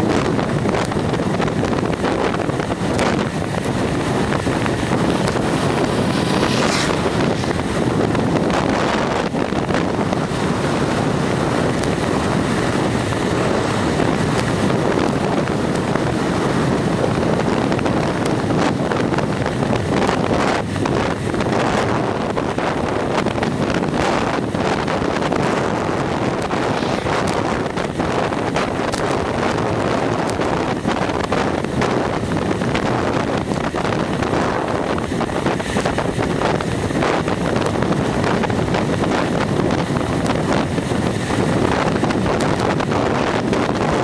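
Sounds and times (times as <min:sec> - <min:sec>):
wind buffeting microphone: 0:00.0 - 0:44.0
tractor passing: 0:02.4 - 0:14.7.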